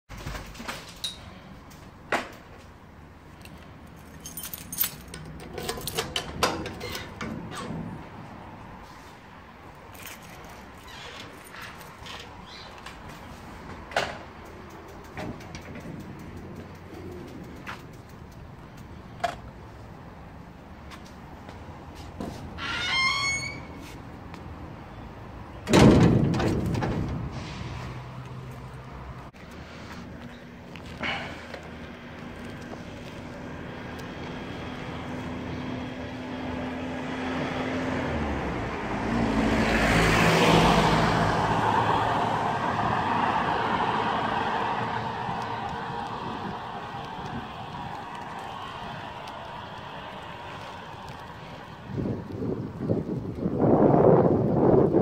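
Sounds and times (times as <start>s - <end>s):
keys jangling: 3.4s - 6.3s, 9.9s - 12.1s
metal gate slamming shut: 22.6s - 23.8s, 25.6s - 27.7s.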